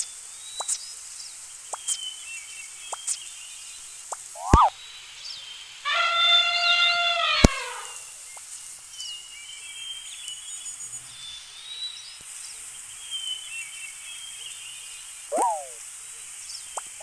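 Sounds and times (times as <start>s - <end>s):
elephant trumpet call: 5.8s - 8.1s
bird chirps and whistles: 5.9s - 8.1s, 15.3s - 15.8s.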